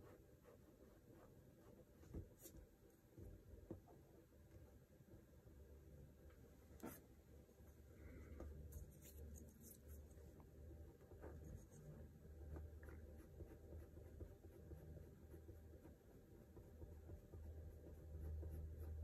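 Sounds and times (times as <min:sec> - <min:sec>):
low steady hum: 0:00.0 - 0:19.0
pencil scratching on board: 0:11.0 - 0:19.0.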